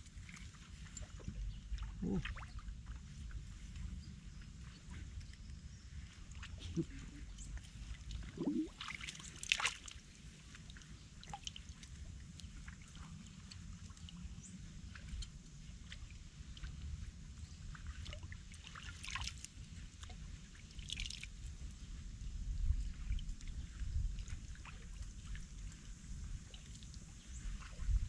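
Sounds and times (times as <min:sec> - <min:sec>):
water splashes: 0:00.0 - 0:03.7, 0:05.9 - 0:17.0, 0:17.7 - 0:21.3, 0:24.2 - 0:28.0
water sloshing and trickling: 0:00.0 - 0:28.0.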